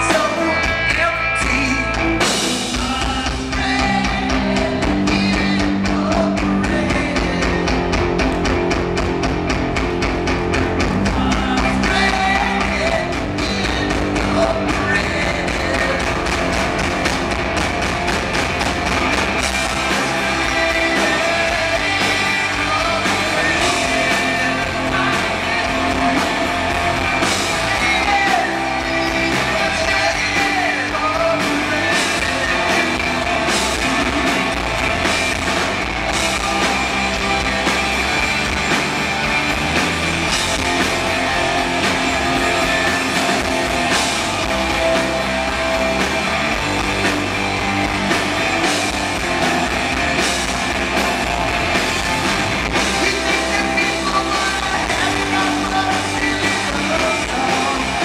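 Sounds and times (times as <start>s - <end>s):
person singing: 0.0s - 8.2s, 11.0s - 16.6s, 19.4s - 38.8s, 52.6s - 58.0s
bass guitar: 0.0s - 58.0s
electric guitars: 0.0s - 58.0s.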